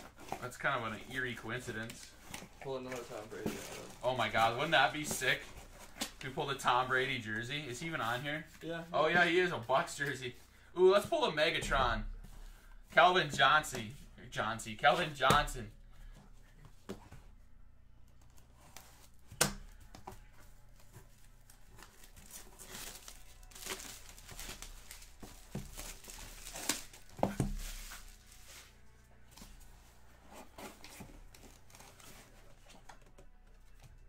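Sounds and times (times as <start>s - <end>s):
plastic packaging crinkling and tearing: 0.1s - 6.2s, 21.3s - 28.7s.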